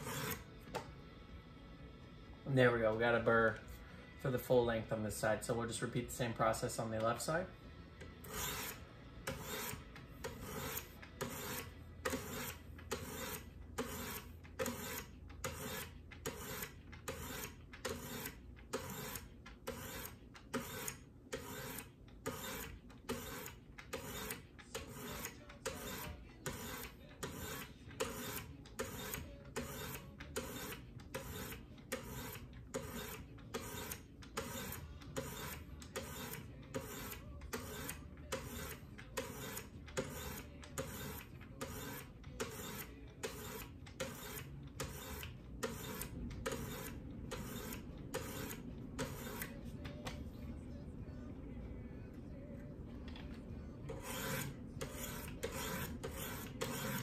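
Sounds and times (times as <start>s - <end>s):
sharpening stone scraping blade: 8.2s - 49.6s, 53.9s - 57.0s.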